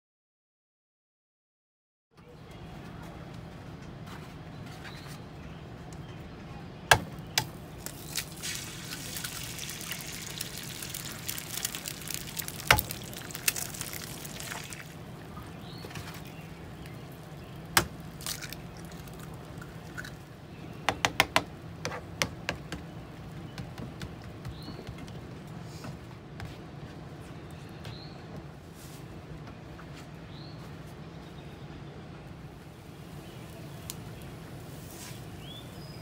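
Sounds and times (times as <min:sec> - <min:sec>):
eggshells cracking: 0:07.0 - 0:15.4, 0:16.1 - 0:20.4
eggs sizzling on a griddle: 0:07.4 - 0:15.4, 0:16.6 - 0:20.4.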